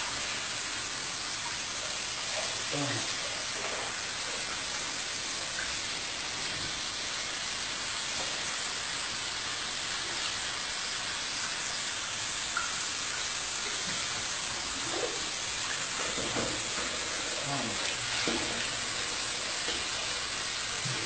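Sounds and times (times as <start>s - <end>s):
water stream splashing: 12.1s - 21.0s.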